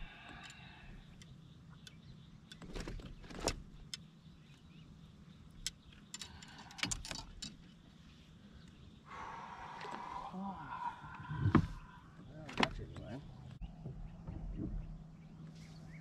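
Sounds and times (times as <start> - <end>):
fishing gear clicking and rattling: 5.5 - 7.8.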